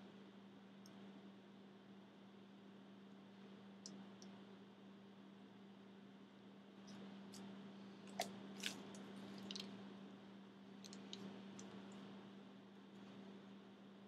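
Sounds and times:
low electrical hum: 0.0 - 14.0
clay being squeezed: 7.3 - 9.8, 10.8 - 11.9.

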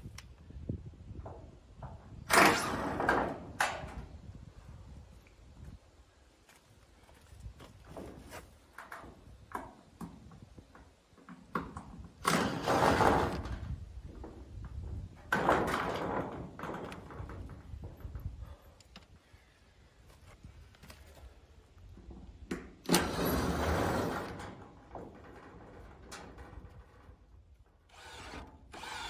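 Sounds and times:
cordless drill into metal: 22.9 - 24.4, 27.9 - 29.0.

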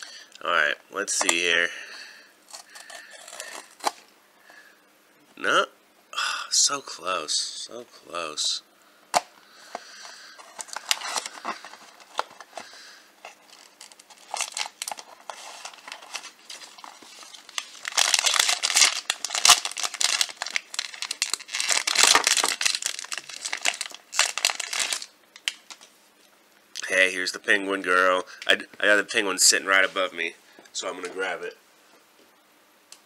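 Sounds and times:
plastic bag crinkling: 9.8 - 25.9.

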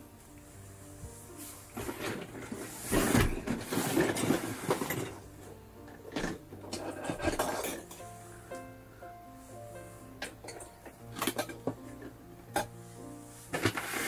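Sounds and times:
packaging rustling and clattering: 1.3 - 8.1, 13.5 - 14.0.

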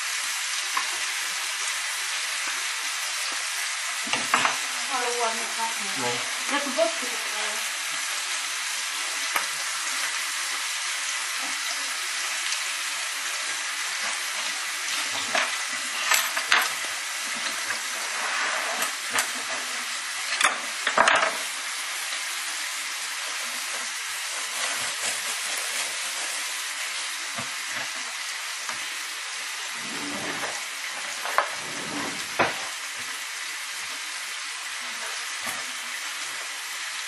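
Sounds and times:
meat sizzling in a pan: 0.0 - 37.0
pots and utensils clattering: 4.1 - 4.7, 13.9 - 21.5.

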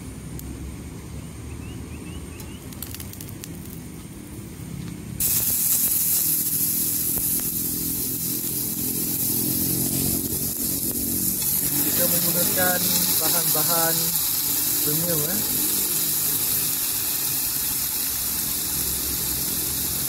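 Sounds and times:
meat sizzling in a frying pan: 5.2 - 20.0.

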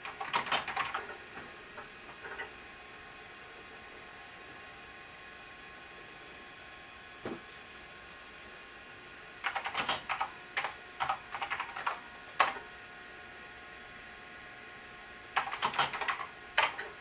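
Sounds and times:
keyboard typing: 0.0 - 1.2, 9.4 - 12.7, 15.4 - 17.0.

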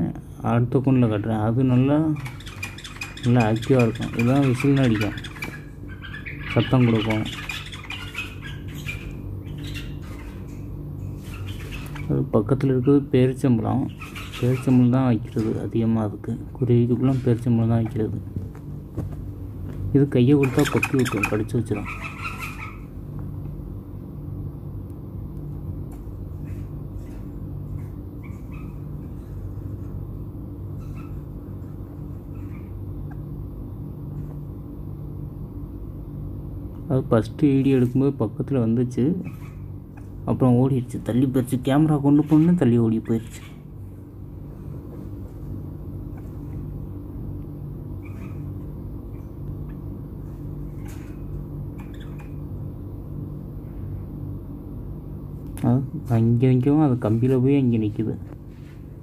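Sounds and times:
low background rumble and hum: 0.0 - 59.0
bird chirps: 2.1 - 12.1, 13.8 - 15.4.

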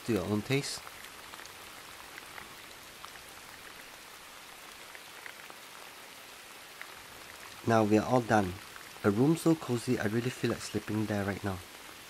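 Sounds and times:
steady rain hiss: 0.0 - 12.0
small drip ticks: 0.1 - 7.6.

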